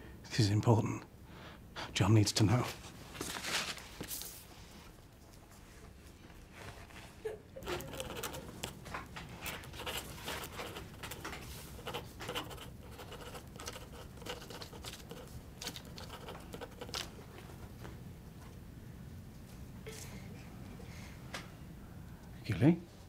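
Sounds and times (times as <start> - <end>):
book pages rustling: 3.1 - 4.5, 6.4 - 17.6.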